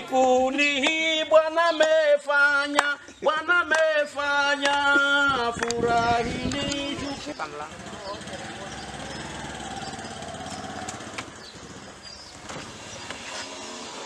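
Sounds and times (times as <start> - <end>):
man singing long notes: 0.0 - 7.4.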